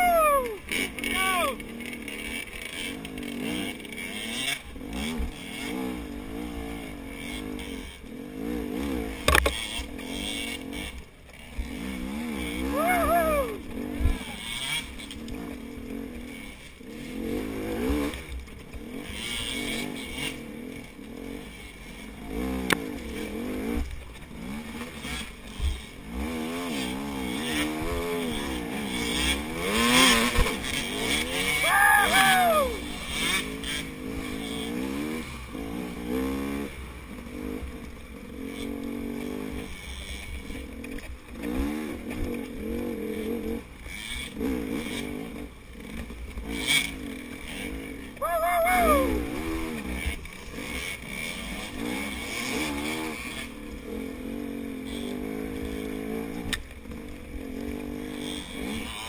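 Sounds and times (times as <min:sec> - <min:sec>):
dirt bike engine revving: 0:00.0 - 0:59.0.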